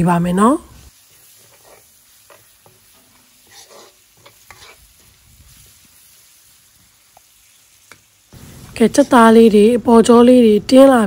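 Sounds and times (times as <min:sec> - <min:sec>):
faint sizzle of frying: 0:00.0 - 0:11.0
metal ladle scraping a wok: 0:01.2 - 0:05.9.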